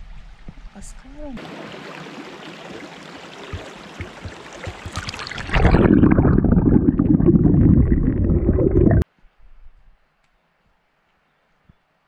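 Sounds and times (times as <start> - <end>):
creek babbling over stones: 1.1 - 9.0
underwater current rushing: 1.4 - 9.0.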